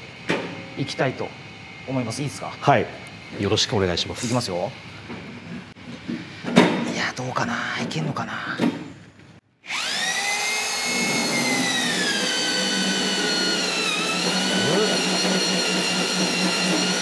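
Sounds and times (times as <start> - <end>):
electric drill whining: 9.6 - 17.0.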